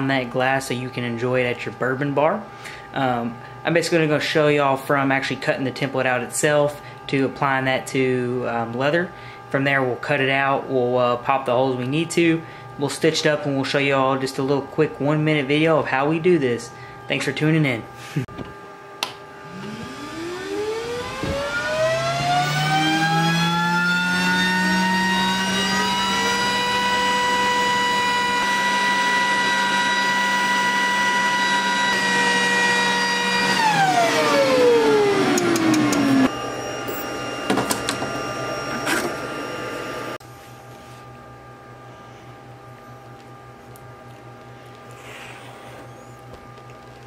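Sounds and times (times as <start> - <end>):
motor whining: 19.0 - 40.2
clicks: 35.3 - 36.1.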